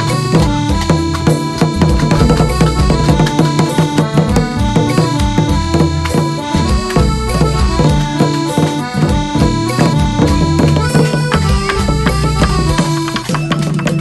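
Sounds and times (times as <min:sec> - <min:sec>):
quick steady drumbeat: 0:00.0 - 0:14.0
reedy held melody: 0:00.0 - 0:14.0.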